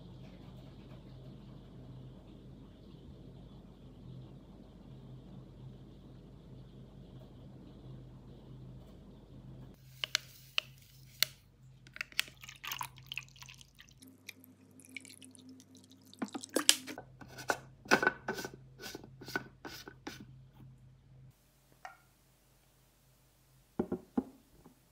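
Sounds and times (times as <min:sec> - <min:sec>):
water pouring: 0:11.9 - 0:17.0.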